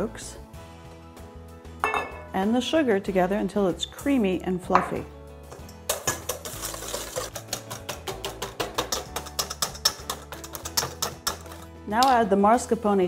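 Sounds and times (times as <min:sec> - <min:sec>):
whisk clicking in metal bowl: 0:05.9 - 0:12.2.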